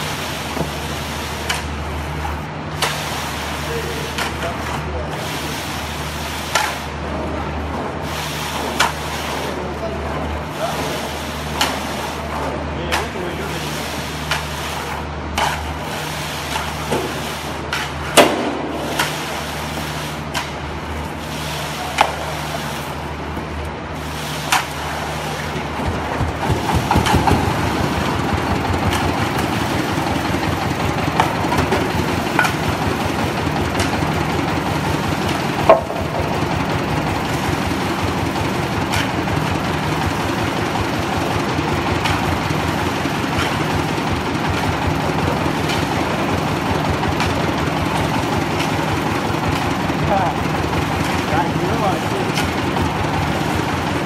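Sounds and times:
concrete pump engine running: 0.0s - 54.0s
shovel clanking on steel hopper: 10.8s - 23.0s, 24.3s - 54.0s.

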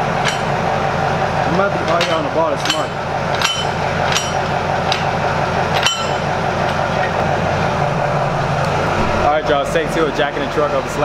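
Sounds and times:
steady mechanical hum: 0.0s - 11.0s
metallic clinks of floor jack: 0.2s - 0.6s, 1.9s - 5.1s, 5.8s - 6.8s.

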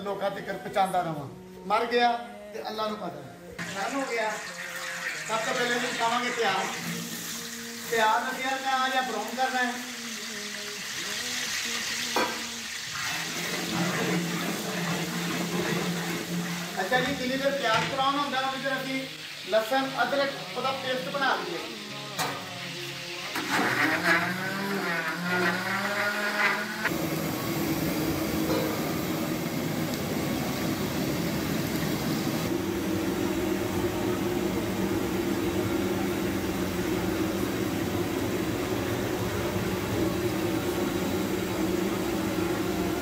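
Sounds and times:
blender motor whirring: 23.3s - 27.1s.

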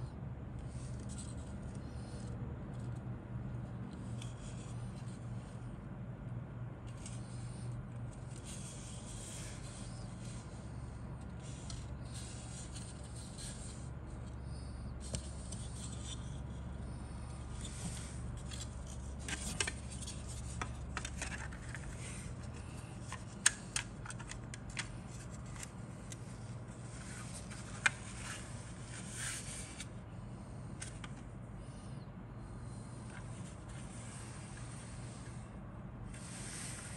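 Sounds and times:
steady low hum: 0.0s - 36.9s
plastic parts rubbing and scraping: 14.6s - 29.9s.

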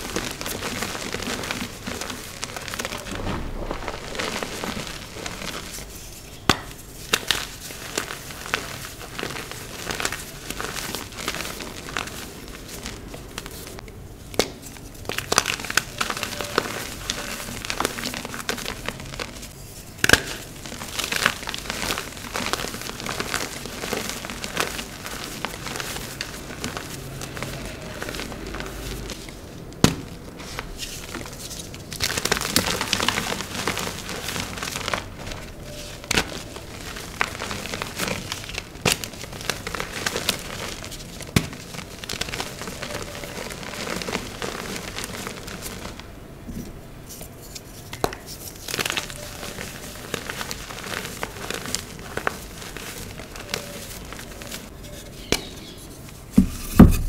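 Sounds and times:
chalk crunching and crackling: 0.0s - 57.0s.

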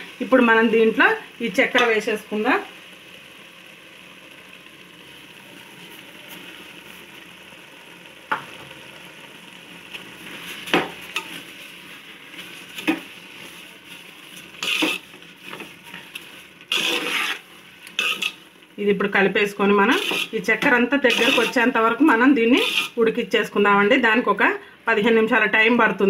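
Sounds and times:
food sizzling in a pot: 0.0s - 24.3s
spoon scraping a metal pot: 14.6s - 16.0s, 16.7s - 18.4s, 19.9s - 20.4s, 21.1s - 21.6s, 22.6s - 23.0s.

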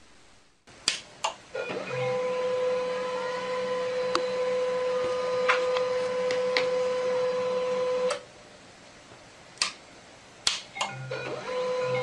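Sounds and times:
printer humming: 1.5s - 8.3s, 10.9s - 12.0s.

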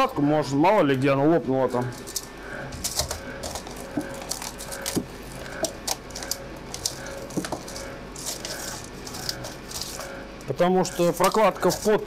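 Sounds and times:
faint steady hum: 0.0s - 12.0s
rag rubbing: 2.8s - 10.3s, 10.9s - 12.0s.

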